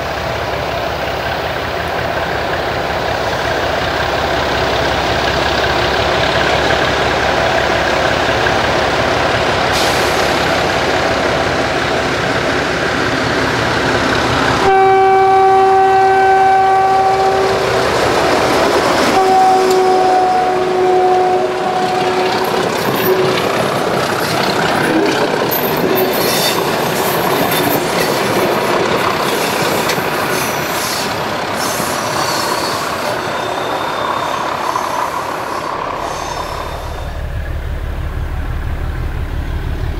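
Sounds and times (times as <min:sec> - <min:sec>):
diesel locomotive running: 0:00.0 - 0:39.9
train horn blasts: 0:14.6 - 0:17.8, 0:19.0 - 0:23.5
coaches rumbling on track: 0:16.4 - 0:39.9.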